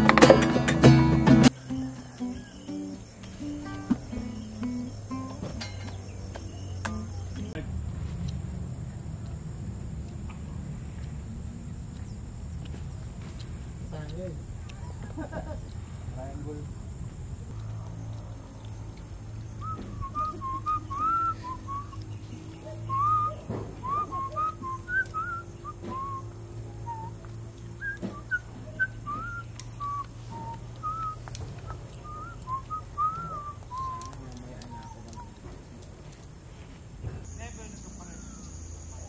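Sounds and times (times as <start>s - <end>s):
steady low hum: 0.0s - 39.0s
person whistling a tune: 19.6s - 22.0s, 22.9s - 27.2s, 27.8s - 35.0s.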